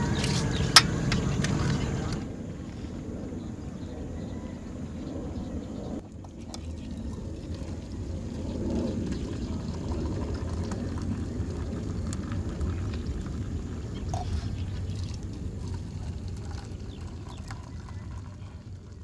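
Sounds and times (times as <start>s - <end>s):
low rumble: 0.0s - 19.0s
coffee pouring into mugs: 6.0s - 19.0s.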